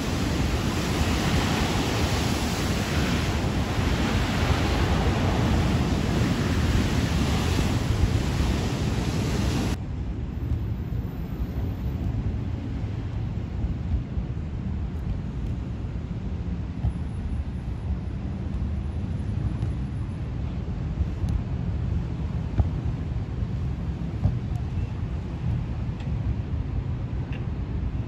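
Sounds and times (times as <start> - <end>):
wind buffeting microphone: 0.0 - 10.8.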